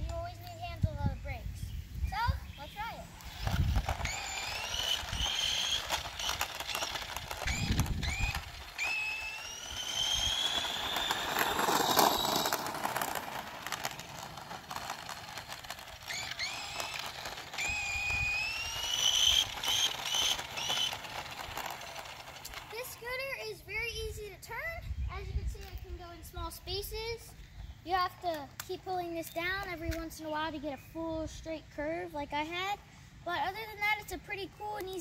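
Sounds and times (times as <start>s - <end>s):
wheel and road noise: 0.0s - 1.4s, 2.1s - 35.0s
electric scooter motor whining: 2.7s - 23.4s
short rising chirps: 3.2s - 13.1s.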